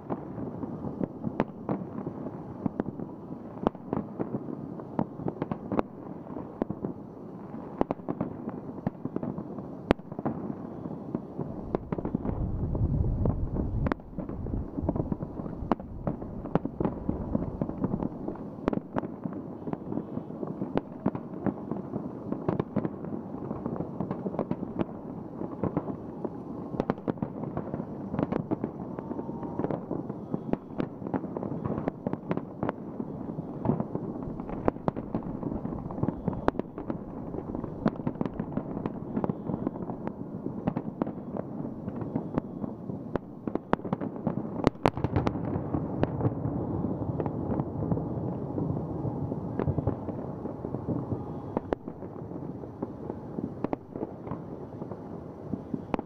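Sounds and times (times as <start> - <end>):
firework bangs and crackling: 0.0 - 56.0
deep rumble of explosions: 11.4 - 56.0.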